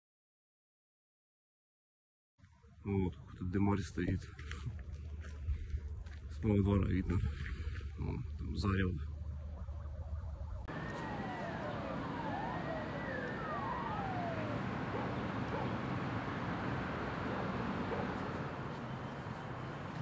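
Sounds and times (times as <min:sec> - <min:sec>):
emergency sirens wailing: 0:09.0 - 0:20.0
steady background noise: 0:10.6 - 0:20.0.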